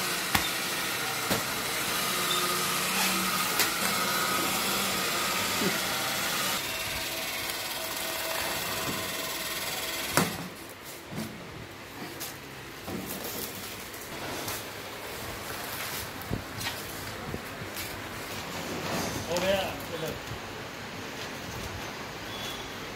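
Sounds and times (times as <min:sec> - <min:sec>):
wrapping machine running: 0:00.0 - 0:11.0.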